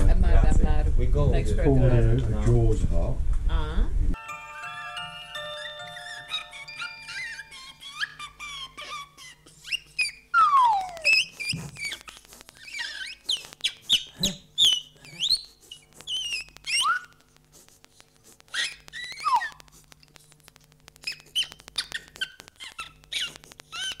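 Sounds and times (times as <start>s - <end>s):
cartoon squeaks and chirps: 5.7s - 17.2s, 18.5s - 19.8s, 21.0s - 24.0s
gliding whistles: 10.0s - 12.0s.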